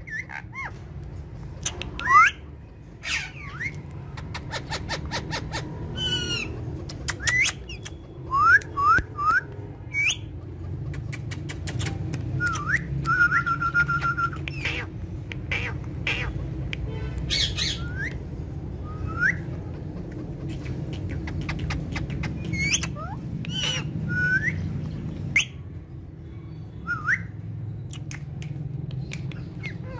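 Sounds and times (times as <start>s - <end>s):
parakeet squawks: 0.0s - 0.9s, 1.6s - 8.1s, 14.5s - 18.2s, 19.2s - 24.6s
sharp clicks: 10.9s - 13.4s, 27.9s - 29.6s.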